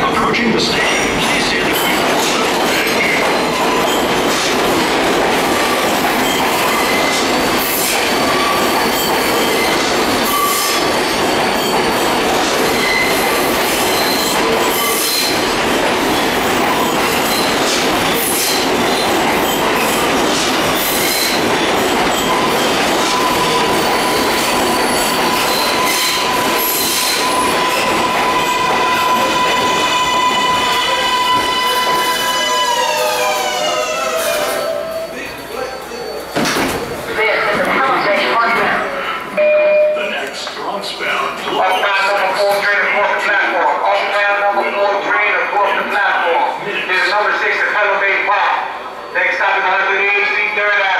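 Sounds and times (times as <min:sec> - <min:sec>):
train wheels on rails: 0:00.0 - 0:39.4
wheel squeals: 0:12.7 - 0:15.4, 0:20.7 - 0:36.6.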